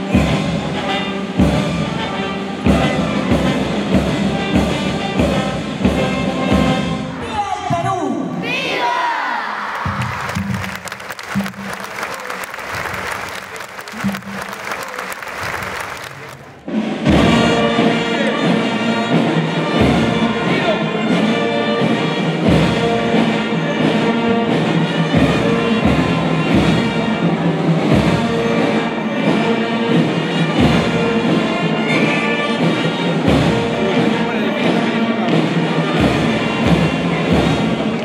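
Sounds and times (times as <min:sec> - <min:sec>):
school band playing a march: 0:00.0 - 0:07.9, 0:08.5 - 0:38.0
applause: 0:09.7 - 0:16.6
bass drum beats: 0:09.9 - 0:16.3.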